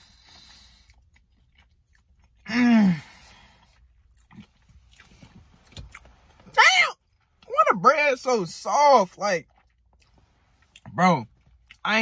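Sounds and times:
wet chewing and mouth clicks: 0:00.2 - 0:02.5, 0:03.6 - 0:06.4, 0:09.4 - 0:11.9.

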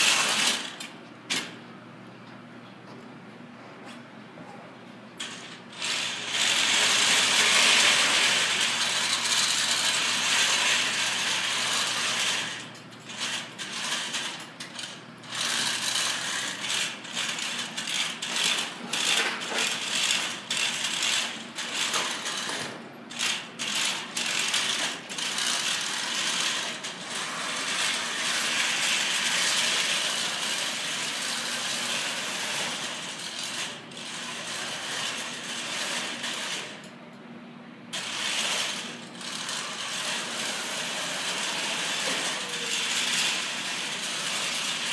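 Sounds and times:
robot motors and gearboxes running: 0:05.8 - 0:36.6.

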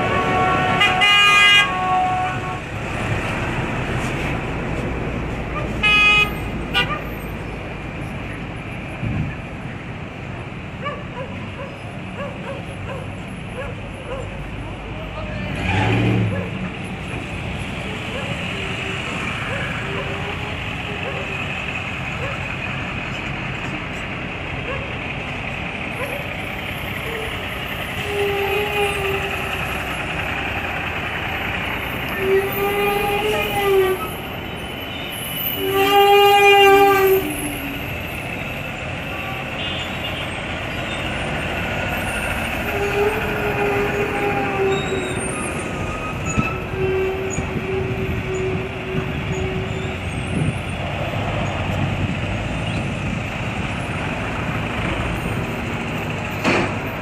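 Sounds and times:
vehicle horns honking: 0:00.0 - 0:02.7, 0:05.8 - 0:07.0, 0:28.0 - 0:29.5, 0:32.1 - 0:37.5, 0:39.1 - 0:40.4, 0:46.2 - 0:50.5
road traffic rumble: 0:00.0 - 0:57.0.

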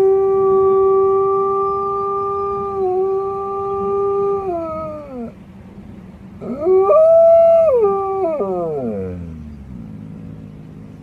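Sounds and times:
wolf howling: 0:00.0 - 0:05.4, 0:06.4 - 0:09.4.

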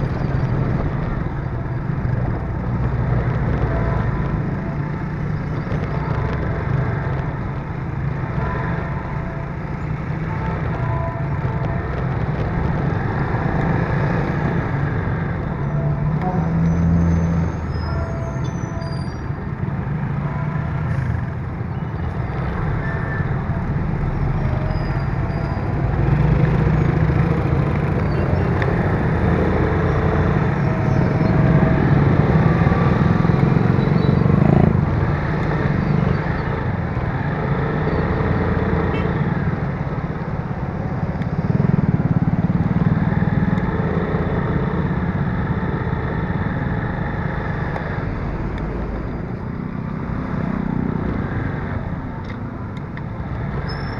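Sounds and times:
nearby vehicle engines: 0:00.0 - 0:53.9
road and wind noise: 0:00.0 - 0:53.9
motorcycle engine revving: 0:24.9 - 0:52.1.

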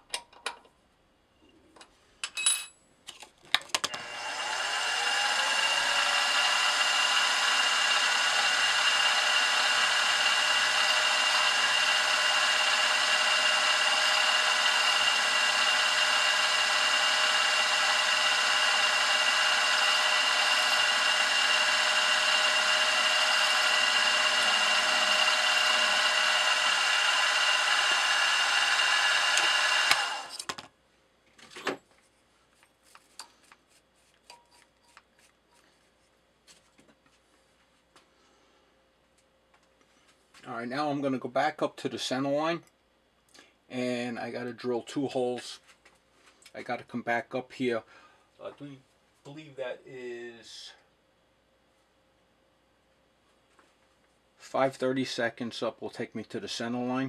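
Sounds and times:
drill boring into brass: 0:03.9 - 0:30.5
milling machine motor whine: 0:03.9 - 0:30.6.

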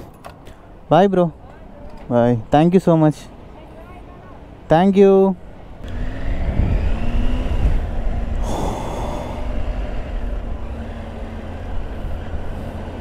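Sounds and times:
wind rumble on microphone: 0:05.8 - 0:13.0.

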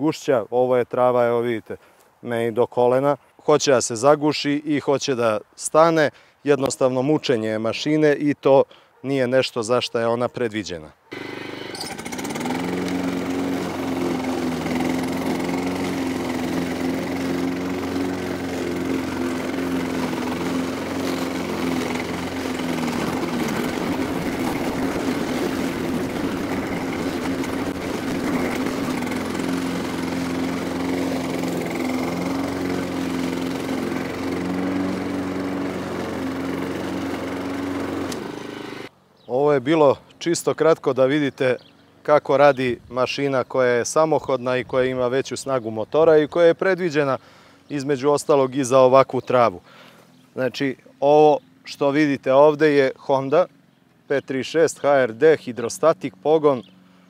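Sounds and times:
lawn mower cutting grass: 0:11.1 - 0:38.9, 0:46.8 - 0:57.0.

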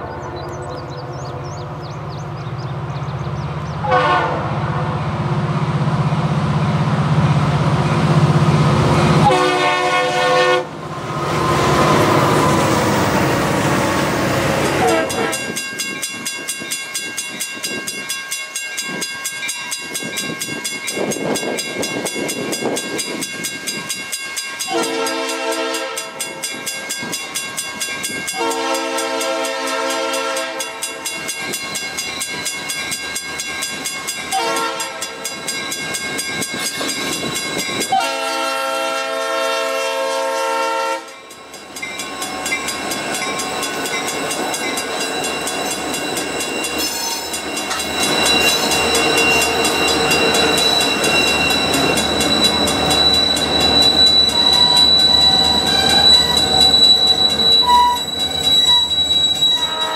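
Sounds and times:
locomotive engine and wheels: 0:00.0 - 0:39.9, 0:40.7 - 0:59.9
train air horn: 0:03.8 - 0:04.9, 0:09.2 - 0:10.7, 0:14.6 - 0:15.6, 0:24.6 - 0:26.3, 0:28.4 - 0:30.9, 0:34.3 - 0:35.2, 0:37.9 - 0:41.2, 0:53.0 - 0:59.9
crossing bell ringing: 0:11.9 - 0:38.2, 0:41.0 - 0:59.9.

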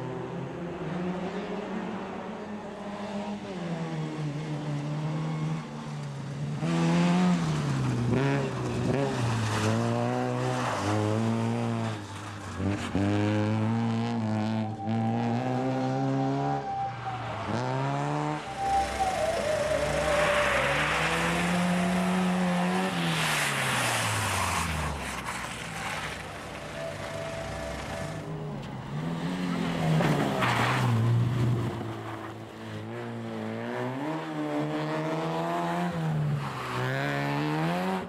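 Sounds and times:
rally car engine revving: 0:06.6 - 0:38.0.

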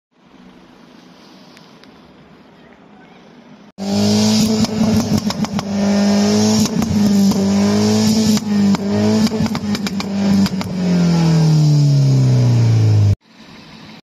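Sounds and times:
faint steady hiss: 0:00.2 - 0:03.7
car exhaust running loudly: 0:03.8 - 0:13.9
exhaust crackles: 0:03.8 - 0:13.9.

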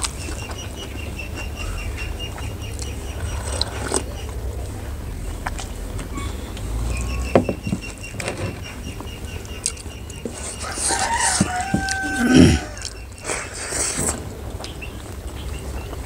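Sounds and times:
low background noise: 0:00.0 - 0:16.0
rooster crowing: 0:10.5 - 0:12.9.

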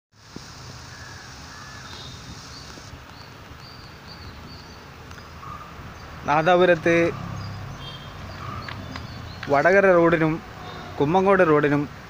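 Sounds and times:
faint bird calls: 0:00.8 - 0:04.3.

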